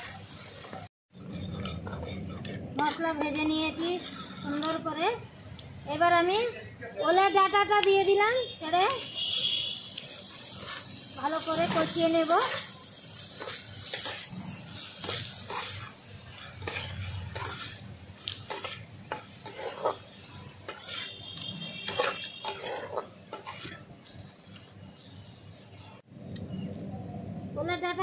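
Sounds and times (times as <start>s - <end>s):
metal spatula scraping a pan: 0.0s - 5.2s, 8.9s - 25.7s
oil sizzling: 0.0s - 5.9s, 8.1s - 26.1s.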